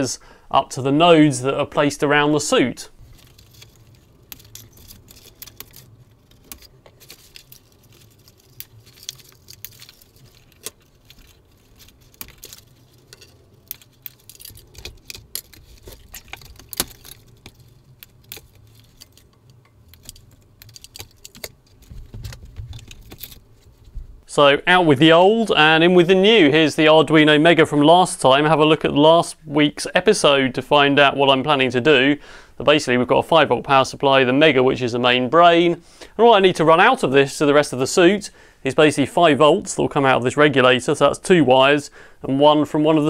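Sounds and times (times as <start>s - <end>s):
clicks and rattles of wire: 3.0s - 24.2s.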